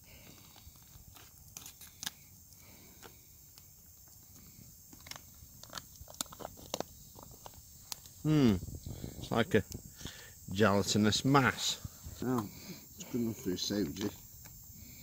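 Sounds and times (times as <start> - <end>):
foil pouch crinkling and tearing: 0.0 - 8.3
sharp crackles: 0.0 - 10.3.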